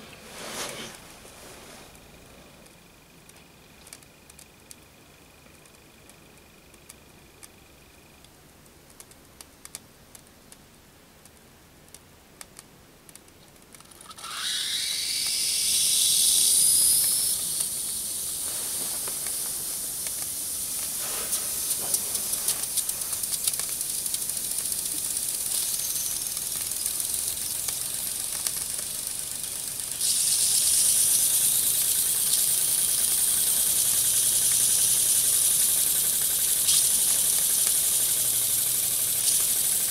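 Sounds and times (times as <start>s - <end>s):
steam jets hissing: 0.0s - 2.1s, 14.1s - 39.9s
faint clicks: 2.6s - 10.6s, 18.8s - 30.1s.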